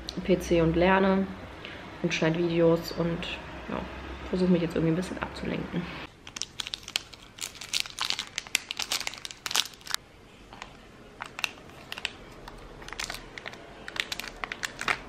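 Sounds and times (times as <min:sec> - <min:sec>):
plastic wrapper crinkling: 0:06.1 - 0:10.0, 0:10.6 - 0:15.0.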